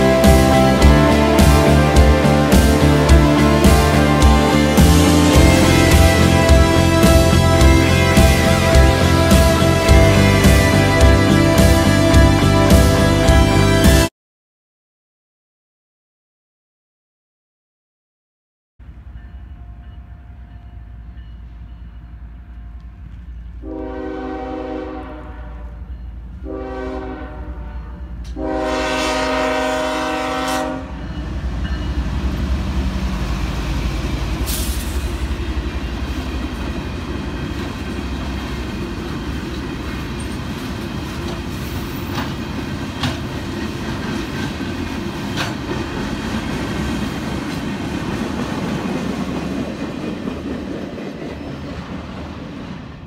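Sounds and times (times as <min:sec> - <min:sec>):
locomotive horn blasts: 0:00.0 - 0:14.1, 0:23.6 - 0:31.2
train rumbling past: 0:00.0 - 0:14.1, 0:18.8 - 0:53.0
wheels clicking over rail joints: 0:36.4 - 0:52.3.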